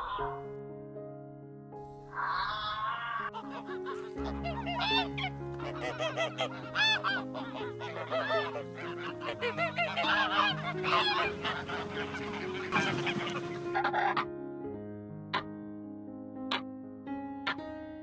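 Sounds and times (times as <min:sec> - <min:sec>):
geese honking: 0:02.2 - 0:14.3
music with long held notes: 0:03.3 - 0:18.0.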